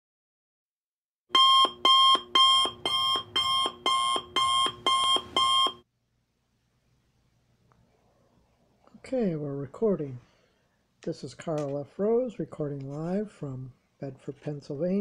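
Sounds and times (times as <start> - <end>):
alarm clock beeping: 1.3 - 5.8.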